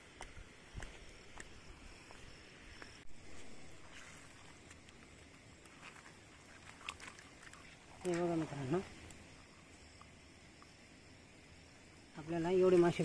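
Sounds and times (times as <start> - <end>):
net rustling: 3.3 - 8.5
fish tapping and slapping: 4.7 - 8.4.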